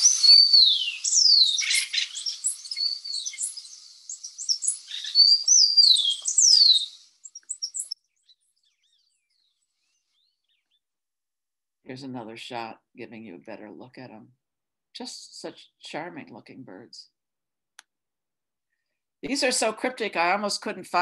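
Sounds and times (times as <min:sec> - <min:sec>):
chattering bird notes: 0:00.0 - 0:08.0
woodpeckers calling: 0:00.0 - 0:09.4.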